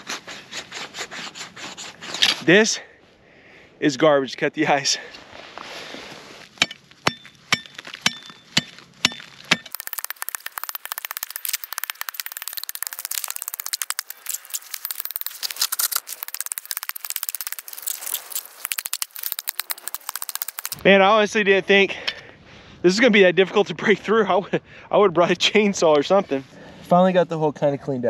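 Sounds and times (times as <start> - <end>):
hand tools hitting ice: 6.6 - 20.8
ice crackling and breaking: 7.6 - 20.8.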